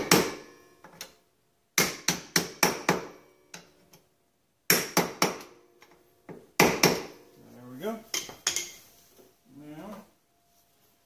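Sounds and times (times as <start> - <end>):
hammer striking metal punch: 0.0 - 0.5, 6.6 - 7.2.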